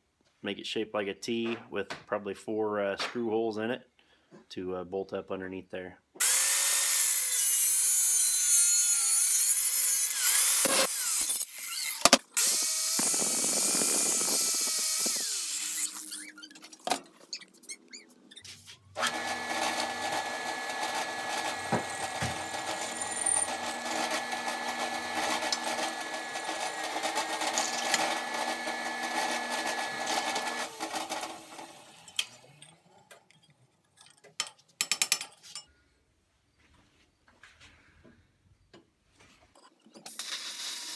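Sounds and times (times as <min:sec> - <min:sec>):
angle grinder cutting steel: 0:06.2 - 0:16.3, 0:19.0 - 0:32.3
drill press drilling steel: 0:19.0 - 0:31.6.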